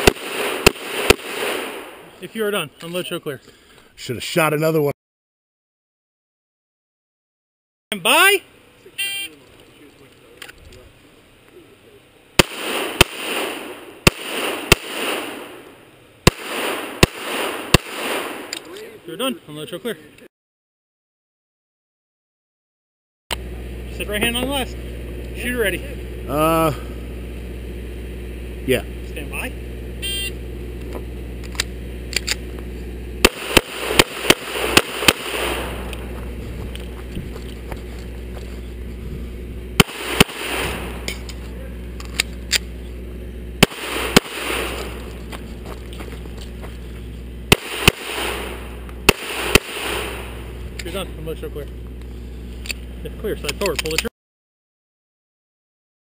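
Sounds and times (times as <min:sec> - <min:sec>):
pistol shots with echo: 0:00.0 - 0:02.2, 0:12.4 - 0:18.6, 0:33.2 - 0:36.1, 0:39.8 - 0:41.2, 0:43.6 - 0:45.1, 0:47.5 - 0:50.6
shot timer beep: 0:30.0 - 0:30.4.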